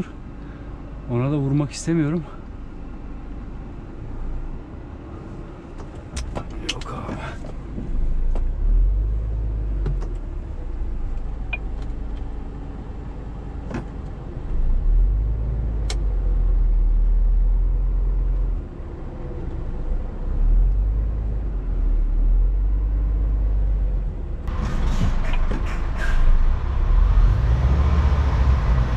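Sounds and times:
sharp clicks in cab: 5.8 - 7.2, 15.8 - 16.0.

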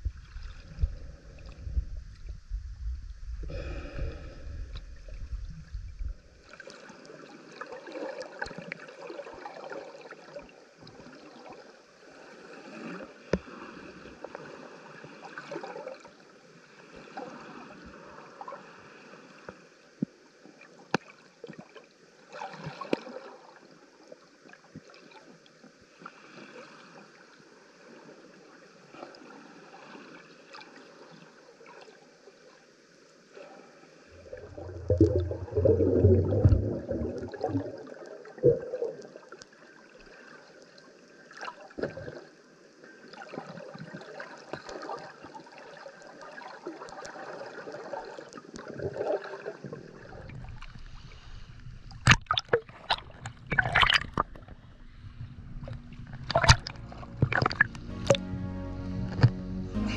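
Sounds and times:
low underwater rumble: 0.0 - 6.5, 34.1 - 38.8, 49.9 - 59.9
underwater hiss: 0.0 - 7.4, 33.2 - 37.8, 49.7 - 52.0.

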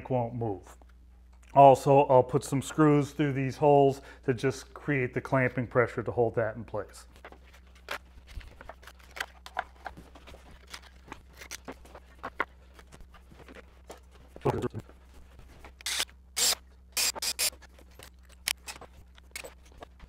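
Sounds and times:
cordless drill driving screws: 15.8 - 17.5.

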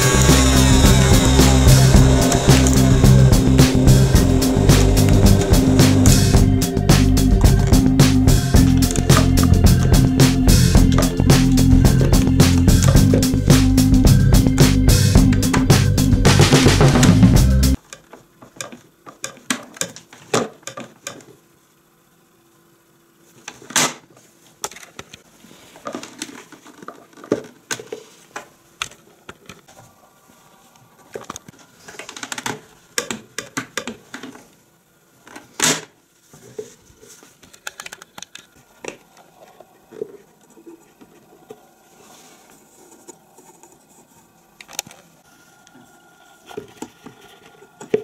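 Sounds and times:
plastic clicks and rattles: 37.4 - 39.0.

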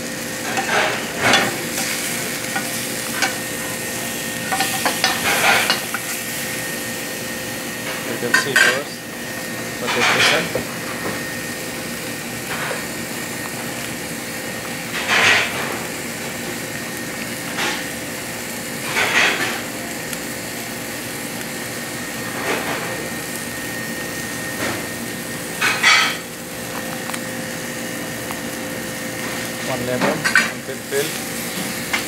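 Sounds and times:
kitchen hum: 0.0 - 32.0
cookware and utensils clattering: 0.4 - 3.5, 4.4 - 6.2, 8.0 - 9.0, 9.8 - 10.7, 25.6 - 26.3, 29.9 - 30.8.

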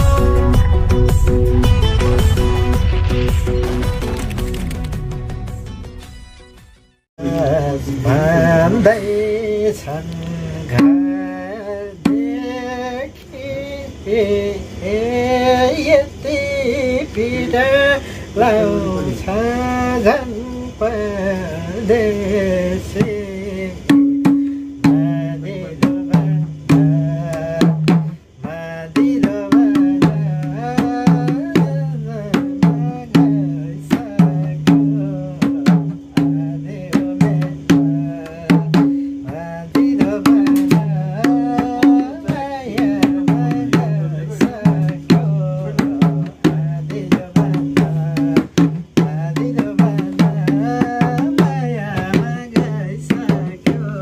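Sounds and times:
hand drum playing: 10.8 - 11.2, 23.9 - 28.2, 29.0 - 54.0.

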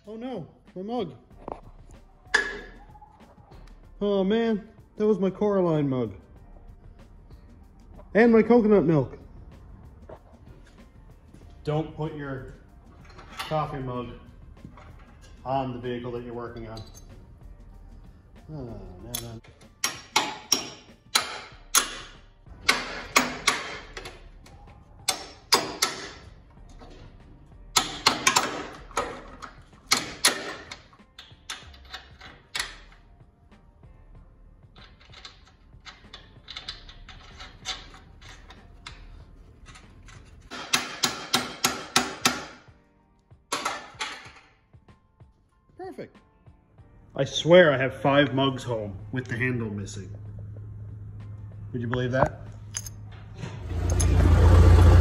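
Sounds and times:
metal tools clanking: 13.0 - 14.1, 14.7 - 17.2, 51.9 - 54.2.

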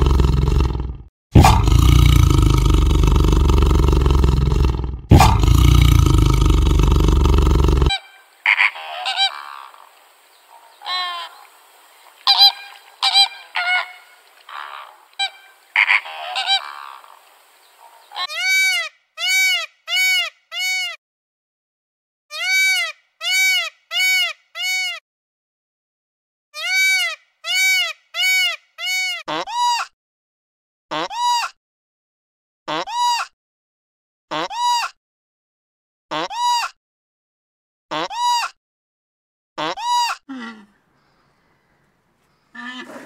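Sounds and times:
tiger roaring: 0.0 - 8.0, 42.5 - 43.0
peacock calling: 7.8 - 20.9, 22.4 - 25.0, 26.6 - 29.2, 39.6 - 43.0
flamingos honking: 7.9 - 18.7, 41.4 - 43.0.

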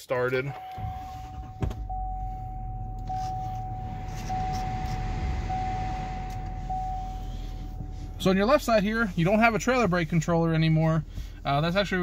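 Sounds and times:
dashboard warning chime: 0.5 - 9.6
diesel engine idling: 0.8 - 12.0.

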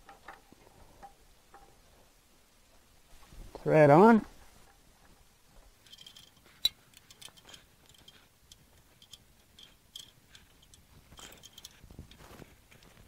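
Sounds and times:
small metal clicks and ticks: 0.0 - 1.9, 5.8 - 13.0.

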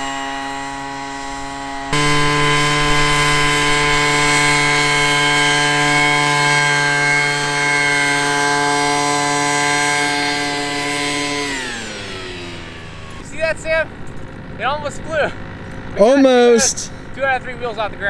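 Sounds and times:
leaf blower engine whining: 0.0 - 18.0.

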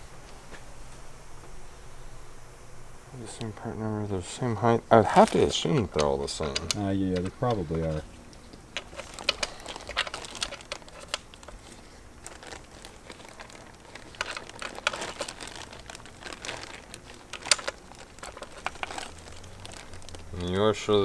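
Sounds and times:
plastic bag crinkling: 5.0 - 21.0
metal parts clicking and tapping: 5.8 - 7.6, 8.5 - 11.6.

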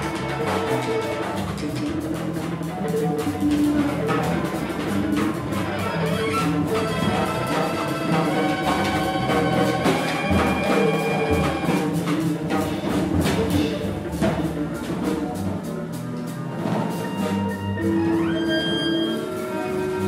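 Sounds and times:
saxophone: 0.0 - 1.7, 4.1 - 12.0, 15.6 - 20.0
double bass: 0.0 - 20.0
drum kit played busily: 0.0 - 20.0
violin: 0.0 - 20.0.

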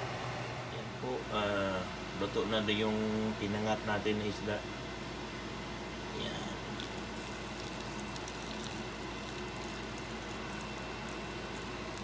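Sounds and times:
gas stove hum and hiss: 0.0 - 12.0
faint crackles of cooking: 6.1 - 12.0.

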